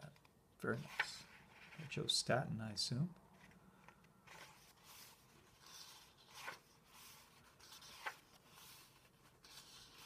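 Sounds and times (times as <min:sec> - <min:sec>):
paper pages rustling: 0:03.3 - 0:10.0.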